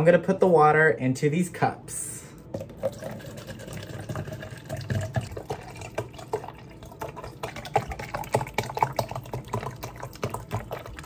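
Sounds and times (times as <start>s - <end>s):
water pouring into plastic cup: 2.6s - 11.0s.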